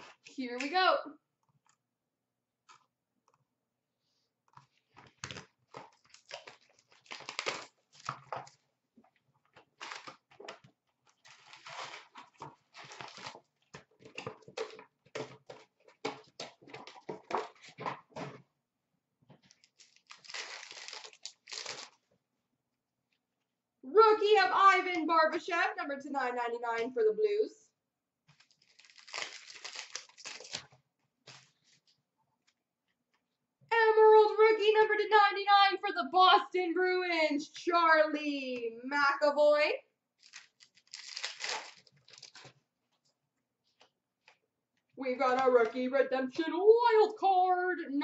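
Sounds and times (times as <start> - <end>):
wrappers tearing and crinkling: 5.1 - 8.6, 9.7 - 10.3, 11.2 - 13.5, 19.5 - 22.0, 28.3 - 30.7, 40.2 - 42.6.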